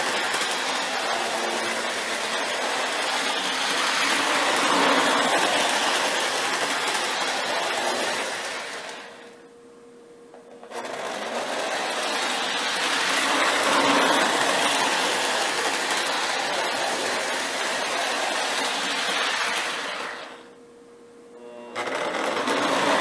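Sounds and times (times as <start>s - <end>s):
wheels rumbling on rails: 0.0s - 9.1s, 11.2s - 20.1s
model locomotive motor whirring: 0.0s - 9.4s, 10.6s - 20.4s, 21.8s - 23.0s.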